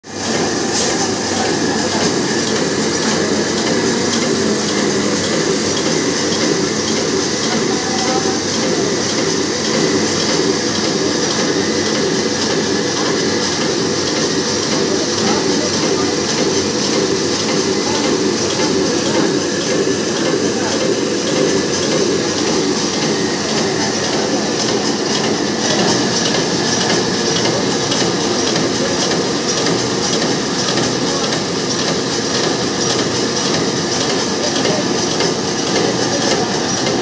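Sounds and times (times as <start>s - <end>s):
machine mechanical clatter: 0.1s - 37.0s.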